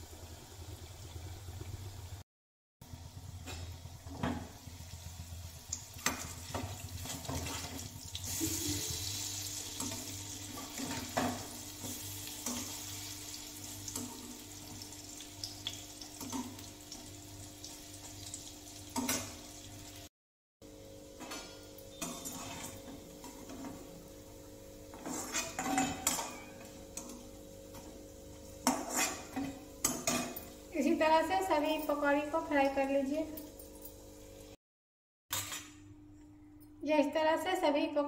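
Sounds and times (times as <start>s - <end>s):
hot oil sizzling: 0.0s - 2.2s, 2.8s - 20.1s.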